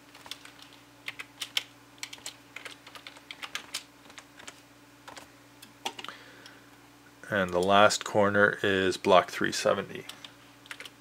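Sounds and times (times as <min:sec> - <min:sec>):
faint low hum: 0:00.0 - 0:11.0
typing on computer keyboard: 0:00.1 - 0:06.1, 0:10.1 - 0:11.0.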